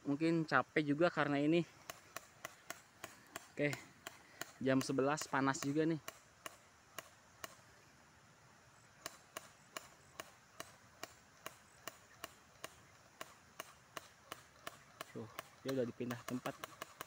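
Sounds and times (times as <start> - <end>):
faint sharp clicks: 9.0 - 17.0.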